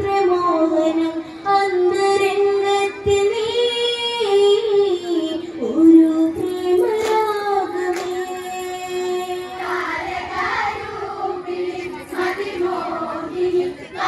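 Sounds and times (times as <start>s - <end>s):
girl singing into microphone: 0.0s - 10.1s
sharp claps: 6.8s - 9.0s.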